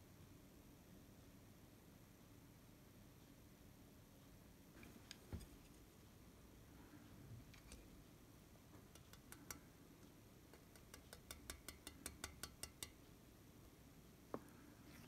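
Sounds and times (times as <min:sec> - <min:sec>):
chopsticks clicking on metal bowl: 0:08.9 - 0:09.7, 0:10.5 - 0:13.0.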